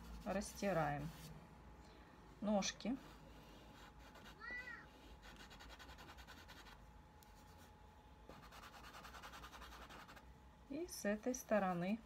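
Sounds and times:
pastel scratching on paper: 0:00.0 - 0:01.3, 0:02.9 - 0:06.8, 0:08.3 - 0:10.2.

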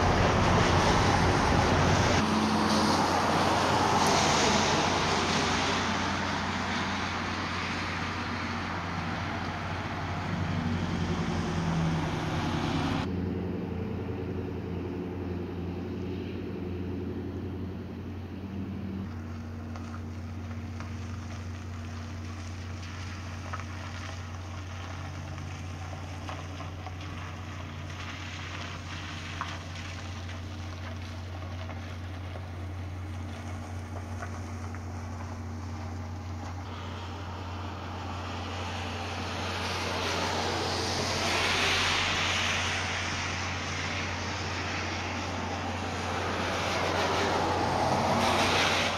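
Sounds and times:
rushing noise: 0:00.0 - 0:17.7, 0:33.2 - 0:48.9
low engine hum: 0:00.0 - 0:48.9.

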